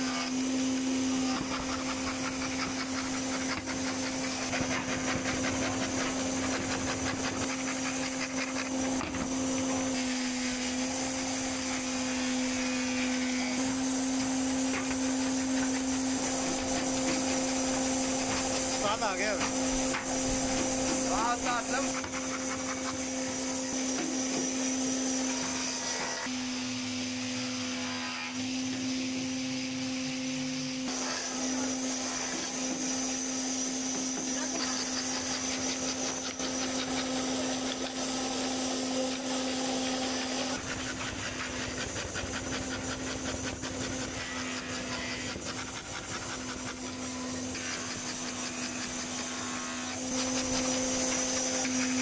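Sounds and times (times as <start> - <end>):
scroll saw motor humming: 0.0 - 52.0.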